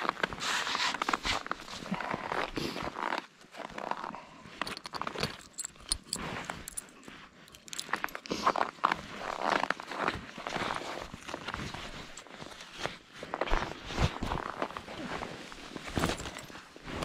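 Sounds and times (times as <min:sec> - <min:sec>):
light clinks: 0:04.6 - 0:08.3.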